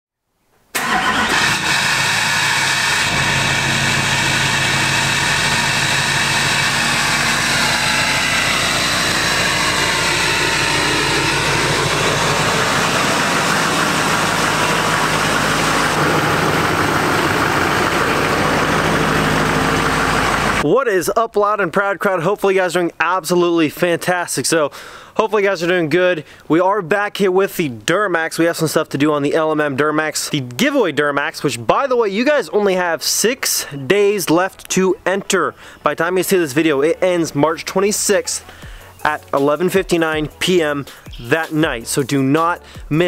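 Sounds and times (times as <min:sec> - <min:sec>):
diesel engine idling: 0:00.8 - 0:20.6, 0:36.8 - 0:43.0
high whine: 0:02.1 - 0:20.7.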